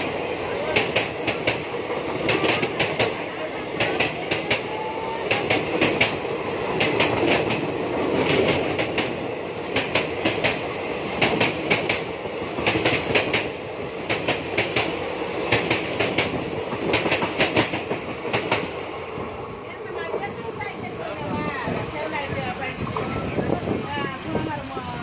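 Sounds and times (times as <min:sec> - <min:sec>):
train wheels clacking on rail joints: 0:00.0 - 0:19.3
train coaches rumbling past: 0:00.0 - 0:25.0.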